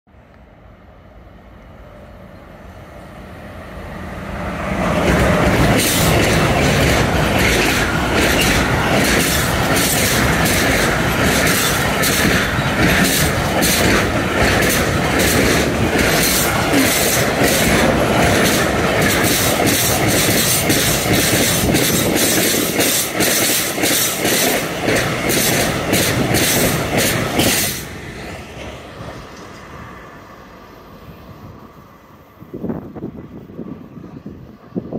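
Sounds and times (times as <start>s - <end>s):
freight train rumbling past: 0.1s - 34.9s
train wheels clattering over rail joints: 4.9s - 27.9s.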